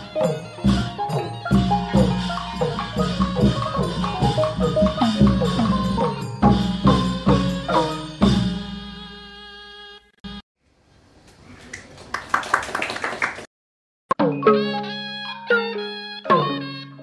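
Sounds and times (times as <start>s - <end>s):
pitched percussion notes: 0.0s - 9.4s, 14.1s - 17.0s.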